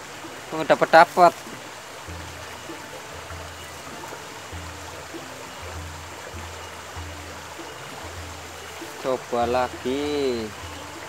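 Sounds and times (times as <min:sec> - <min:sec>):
faint background music: 0:00.0 - 0:11.0
stream rushing: 0:00.0 - 0:11.0.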